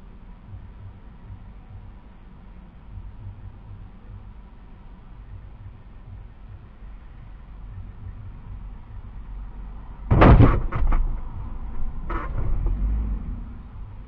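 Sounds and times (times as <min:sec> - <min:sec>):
low engine rumble: 0:00.0 - 0:14.0
van striking car: 0:10.1 - 0:13.2.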